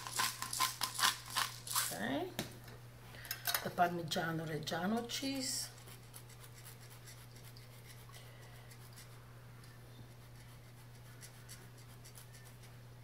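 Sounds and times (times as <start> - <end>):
cheese grating rasps: 0.0 - 2.0, 5.4 - 12.8
steady low hum: 0.0 - 13.0.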